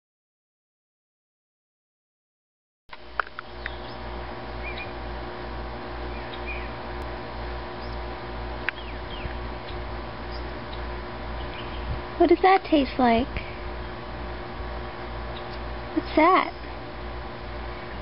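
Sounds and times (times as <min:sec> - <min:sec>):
throbbing hum: 0:02.9 - 0:18.0
faint bird chirps: 0:03.5 - 0:05.0, 0:06.1 - 0:06.8, 0:07.8 - 0:08.0, 0:08.7 - 0:12.0.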